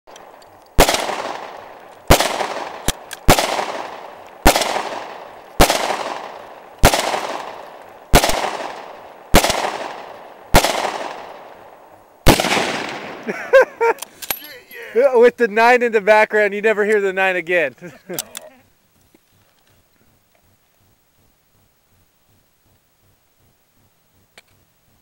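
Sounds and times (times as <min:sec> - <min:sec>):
distant gunshot cracks: 0:00.1 - 0:13.3
rifle shots echoing: 0:00.1 - 0:13.6.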